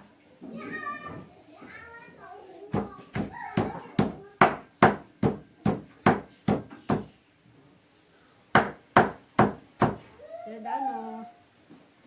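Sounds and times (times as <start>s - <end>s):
cleaver chopping meat on wood: 8.6s - 10.0s.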